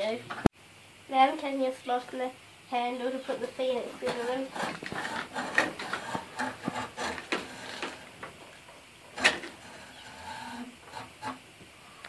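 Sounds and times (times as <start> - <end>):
hacksaw cutting wood: 4.0 - 8.5, 9.1 - 11.5.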